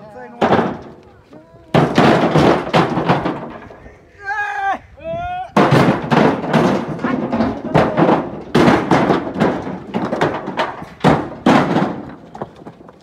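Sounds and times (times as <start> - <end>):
stones knocking together: 5.7 - 13.0.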